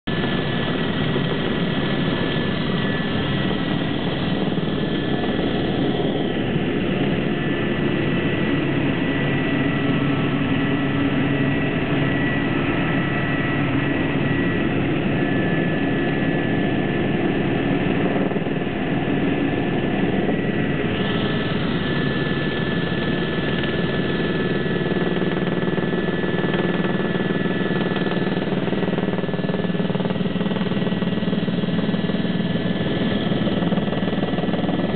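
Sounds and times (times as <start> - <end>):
helicopter rotor and engine drone: 0.0 - 34.9
high turbine whine: 0.1 - 34.9.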